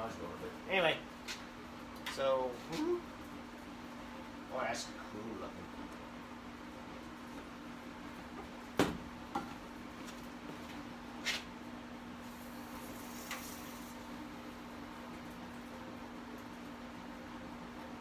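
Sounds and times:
hot blade hissing in oil: 0:12.3 - 0:14.0.

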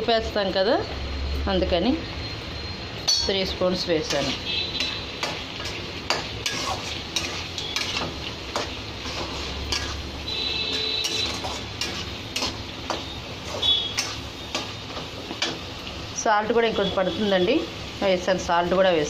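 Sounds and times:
metal spoon scraping metal pan: 0:04.0 - 0:14.8.

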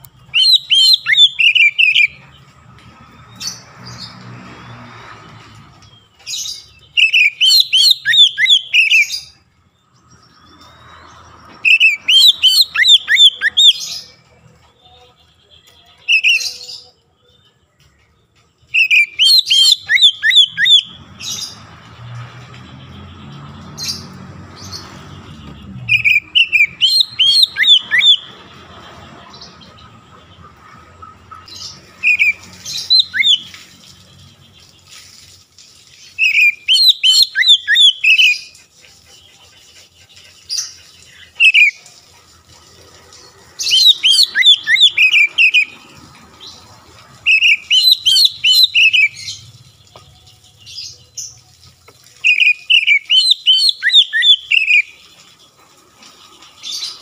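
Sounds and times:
bird singing sharp whistled notes: 0:00.2 - 0:02.2, 0:06.7 - 0:09.4, 0:11.6 - 0:14.1, 0:18.7 - 0:21.6, 0:23.9 - 0:28.3, 0:32.0 - 0:33.6, 0:36.2 - 0:38.4, 0:43.6 - 0:45.7, 0:47.3 - 0:49.4, 0:52.2 - 0:54.9.

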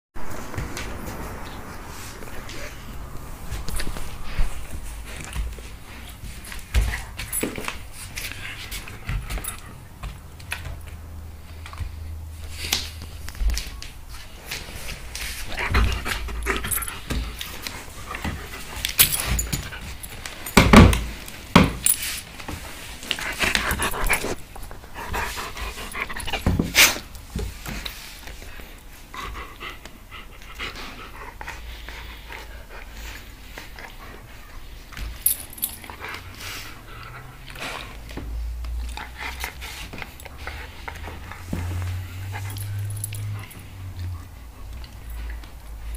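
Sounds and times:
dog panting: 0:14.6 - 0:20.8, 0:23.0 - 0:45.9.

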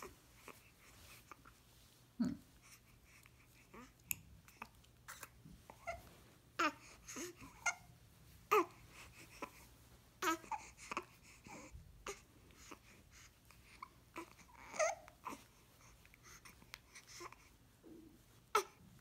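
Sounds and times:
baby whimpering and crying: 0:05.1 - 0:07.9, 0:08.5 - 0:12.9, 0:14.1 - 0:15.5, 0:18.5 - 0:18.8.

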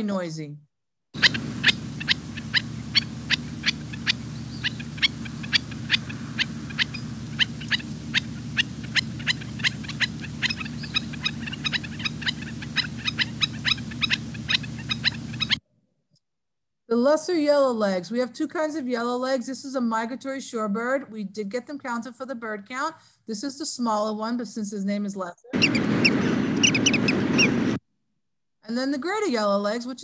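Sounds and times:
bird calling sharp notes: 0:01.2 - 0:15.6, 0:25.6 - 0:27.6
steady low hum: 0:01.2 - 0:15.6.

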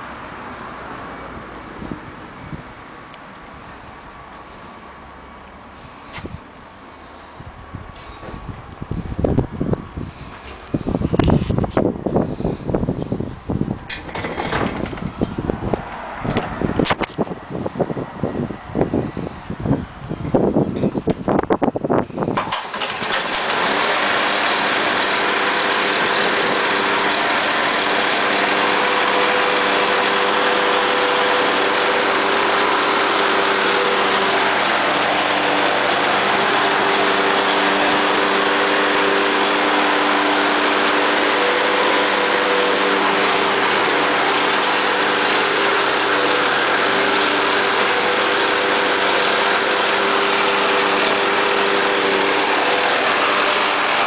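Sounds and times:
lawn mower engine running: 0:00.0 - 0:54.0
starter cord pull: 0:13.9 - 0:15.1, 0:22.4 - 0:23.8.

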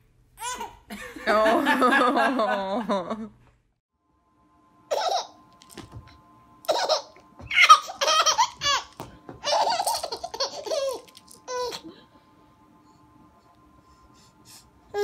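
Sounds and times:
child laughing: 0:06.7 - 0:11.9.

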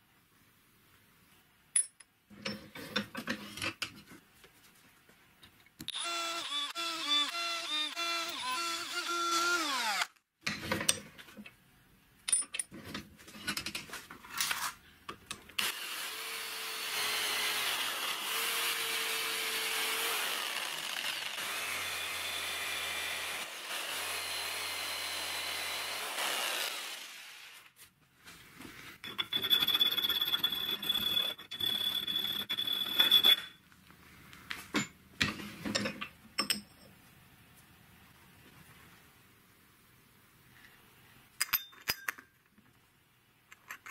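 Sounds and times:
electric drill spinning down: 0:05.9 - 0:10.1, 0:15.6 - 0:27.7
power tool high whine: 0:05.9 - 0:10.1, 0:15.6 - 0:27.6
electric jigsaw cutting metal: 0:05.9 - 0:10.2, 0:15.6 - 0:27.7.

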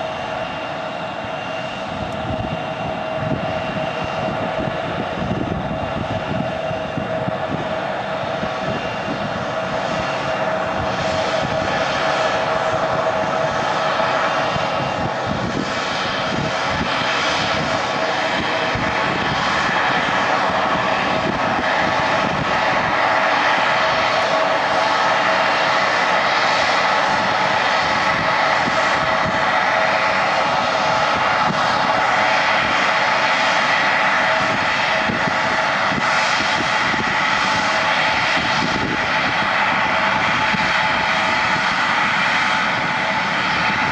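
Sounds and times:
jet engines whining: 0:00.0 - 0:43.9.

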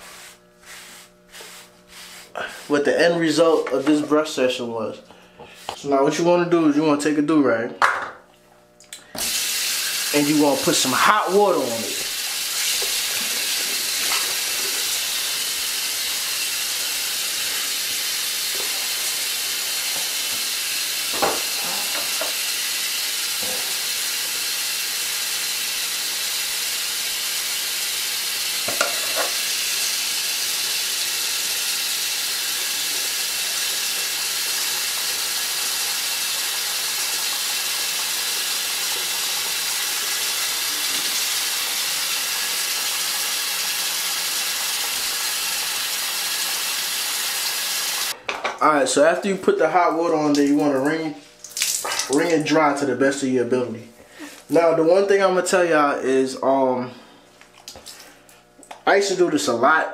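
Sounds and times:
tap running into sink: 0:12.6 - 0:15.0, 0:21.1 - 0:22.4, 0:28.6 - 0:29.5.

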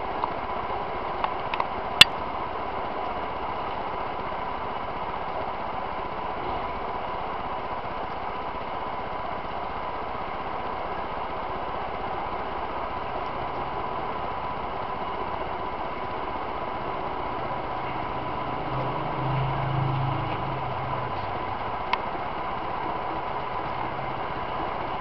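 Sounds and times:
steady mechanical hum: 0:00.0 - 0:25.0
thin high whine: 0:14.8 - 0:25.0.

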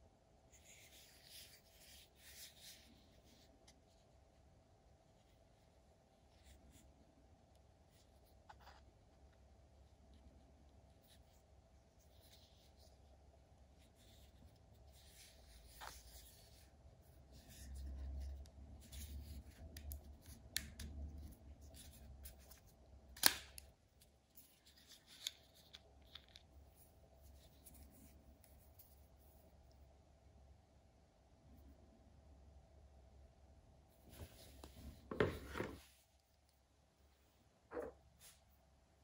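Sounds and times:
tool set rubbing and rustling: 0:34.1 - 0:36.0.

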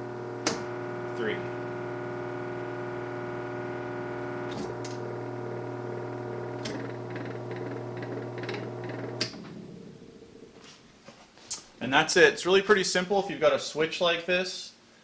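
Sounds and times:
electric motor humming: 0:00.0 - 0:10.4
motor coasting down: 0:00.0 - 0:10.5
rotary switch clicking: 0:00.4 - 0:00.7, 0:04.4 - 0:05.0, 0:06.6 - 0:09.4.

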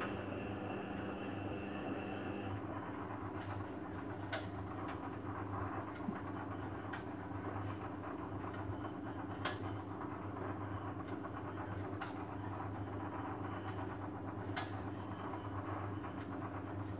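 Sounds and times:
washing machine drum turning: 0:00.0 - 0:02.7.

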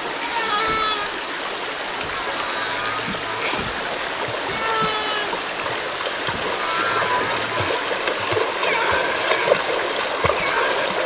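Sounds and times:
water splashing: 0:00.0 - 0:11.0
high-pitched animal calls: 0:00.2 - 0:01.2, 0:02.0 - 0:05.6, 0:06.6 - 0:07.8.

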